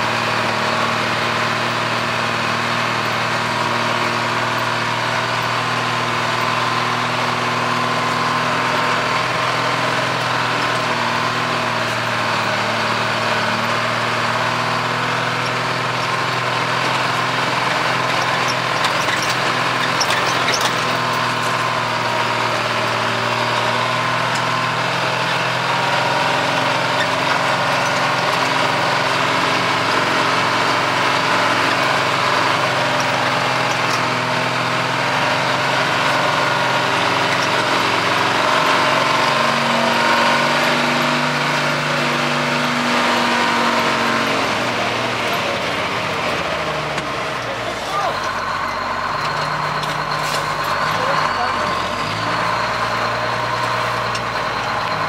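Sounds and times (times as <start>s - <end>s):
truck engine running: 0.0s - 55.0s.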